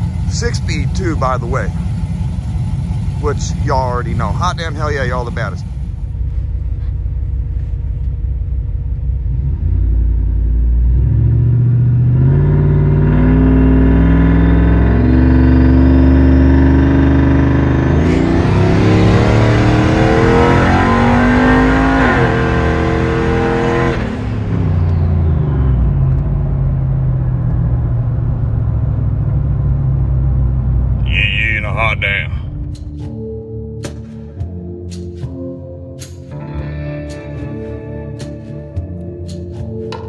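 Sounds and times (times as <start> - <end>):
car engine revving: 8.5 - 32.8.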